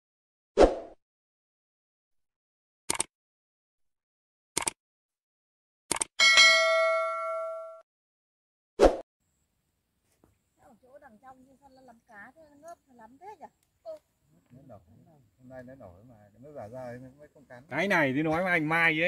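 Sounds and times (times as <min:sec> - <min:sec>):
bell ding: 0:06.2 - 0:07.8.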